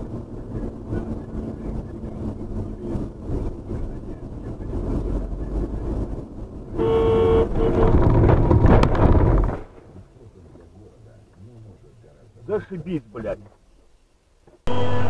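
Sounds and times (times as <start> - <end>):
vehicle engine and road noise: 0.0 - 15.0
car horn: 6.7 - 8.2
loud rough noise with knock: 7.5 - 9.9.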